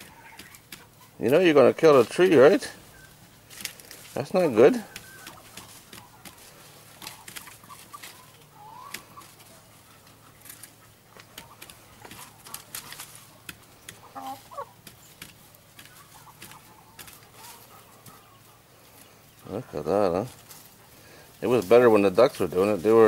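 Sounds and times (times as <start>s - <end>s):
hens clucking softly: 0.0s - 3.3s, 4.4s - 21.1s
pecking clicks and rustles: 8.8s - 14.0s.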